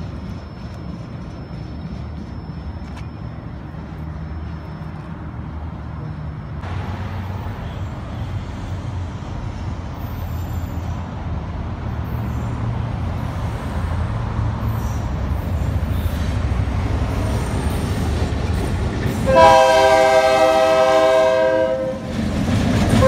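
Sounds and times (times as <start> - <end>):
traffic engine rumble: 0.0 - 23.0
traffic hiss: 2.7 - 22.0.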